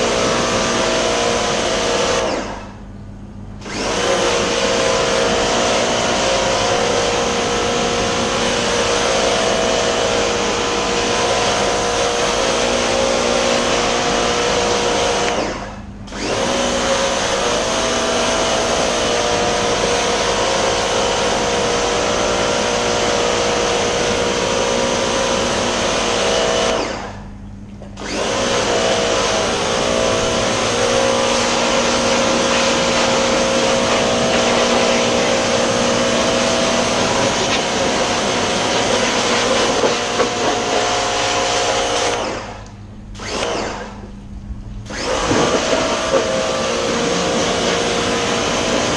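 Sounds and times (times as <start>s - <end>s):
pressure washer motor humming: 0.0s - 2.9s, 3.6s - 27.4s, 28.0s - 48.9s
water jet hissing: 30.4s - 40.8s.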